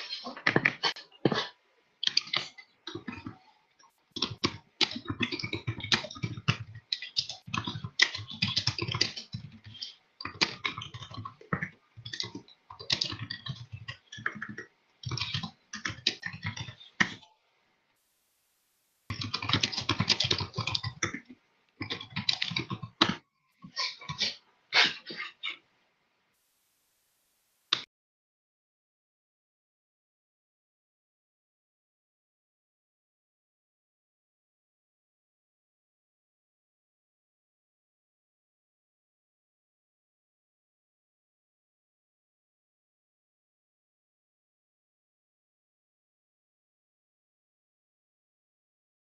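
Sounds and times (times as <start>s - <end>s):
keyboard typing: 19.1s - 23.2s.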